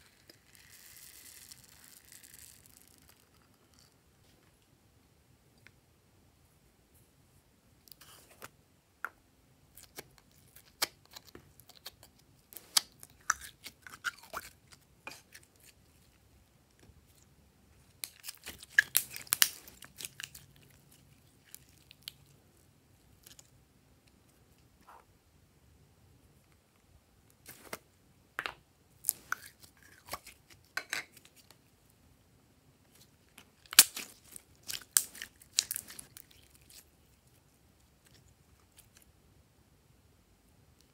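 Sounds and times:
plastic toy and slime crackling: 0:00.0 - 0:04.0, 0:09.7 - 0:23.6, 0:32.9 - 0:39.1.

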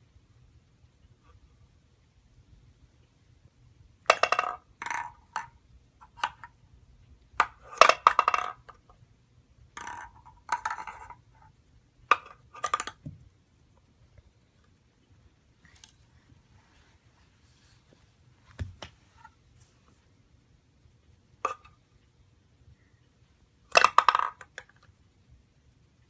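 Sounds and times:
ball rattling through wooden box: 0:07.4 - 0:08.8, 0:09.8 - 0:11.3, 0:12.1 - 0:13.2, 0:23.7 - 0:24.8.

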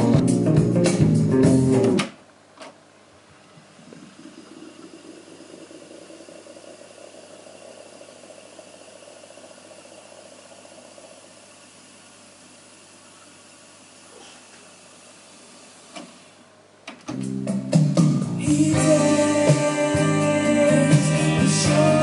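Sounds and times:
tape deck control click: 0:01.7 - 0:02.8
tape reels fast-winding: 0:03.8 - 0:11.9.

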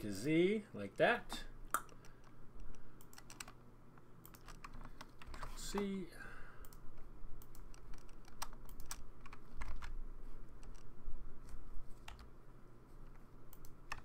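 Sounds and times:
low steady hum: 0:00.0 - 0:14.0
keyboard and mouse clicks: 0:01.7 - 0:03.6, 0:04.2 - 0:05.9, 0:06.6 - 0:10.0, 0:10.6 - 0:12.3, 0:13.0 - 0:14.0.

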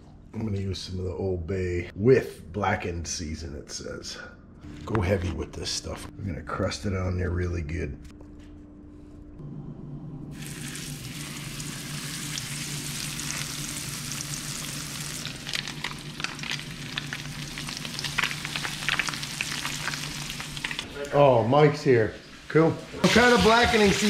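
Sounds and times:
fish sizzling in hot oil: 0:10.4 - 0:20.9, 0:23.0 - 0:24.0.

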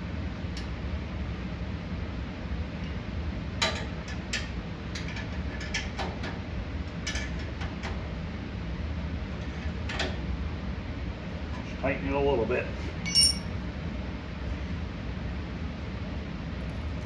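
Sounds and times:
low steady hum: 0:06.6 - 0:17.0.

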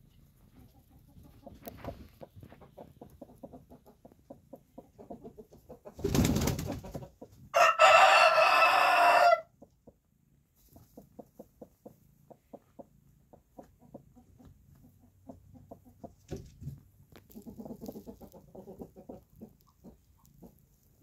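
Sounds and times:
chicken clucking softly: 0:00.0 - 0:21.0
rooster crowing: 0:07.5 - 0:09.5.

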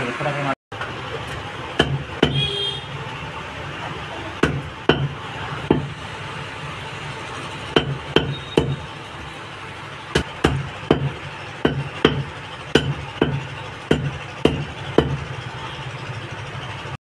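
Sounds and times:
knife chopping on wooden block: 0:01.8 - 0:02.4, 0:04.4 - 0:05.9, 0:07.8 - 0:08.8, 0:10.2 - 0:15.2.

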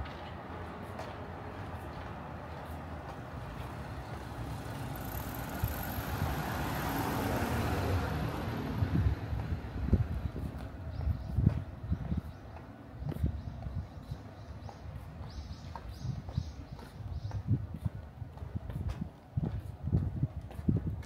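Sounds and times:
vehicle passing by: 0:02.8 - 0:10.6.

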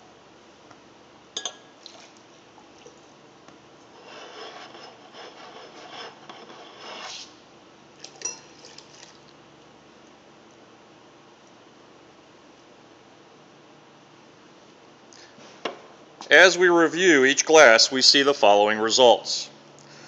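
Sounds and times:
glasses clinking: 0:01.4 - 0:01.7, 0:08.2 - 0:08.6
water sloshing in wine glasses: 0:01.4 - 0:03.1, 0:08.0 - 0:09.3.

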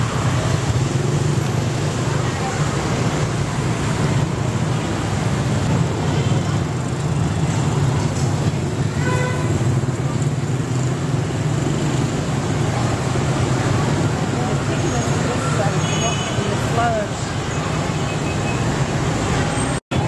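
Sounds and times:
street traffic: 0:00.0 - 0:20.0
car horn toot: 0:08.9 - 0:09.6.

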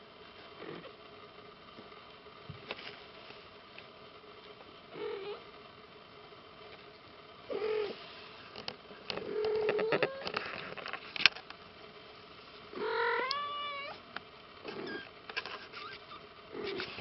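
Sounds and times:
kittens mewing: 0:09.2 - 0:10.4, 0:12.8 - 0:14.0, 0:14.6 - 0:17.0.

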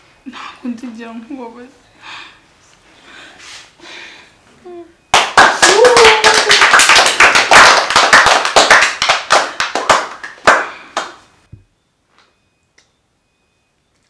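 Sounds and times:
small group applauding: 0:05.1 - 0:11.3.

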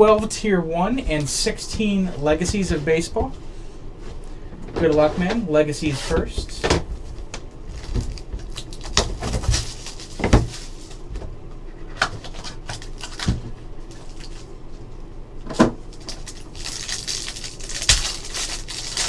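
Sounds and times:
foil pack crinkling: 0:07.6 - 0:11.1, 0:12.2 - 0:14.5, 0:15.9 - 0:19.0.

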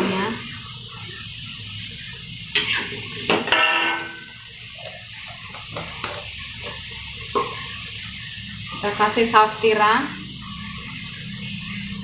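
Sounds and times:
vegetables sizzling: 0:00.0 - 0:12.0.

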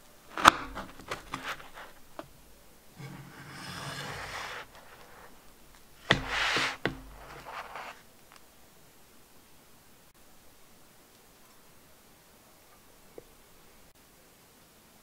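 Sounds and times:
knife scraping through cake base: 0:00.3 - 0:02.0, 0:03.0 - 0:05.4, 0:06.0 - 0:08.0
knife knocking on wooden board: 0:06.0 - 0:07.5
knife tapping: 0:06.0 - 0:07.7.

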